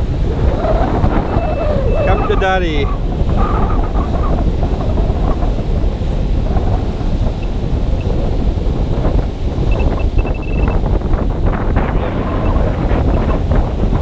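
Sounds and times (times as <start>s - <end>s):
wind buffeting microphone: 0.0s - 14.0s
faint high beeps: 9.7s - 10.8s.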